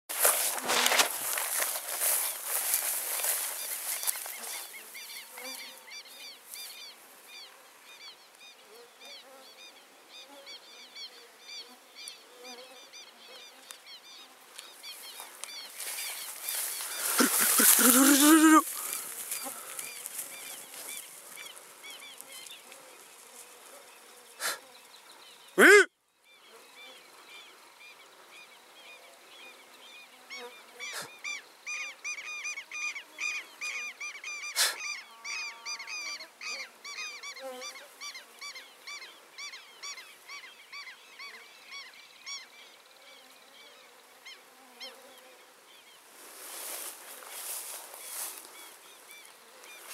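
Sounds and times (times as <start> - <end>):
birds calling: 0.1 - 8.2, 13.0 - 23.1, 46.4 - 49.9
loud short cry: 17.2 - 18.7, 25.6 - 25.9.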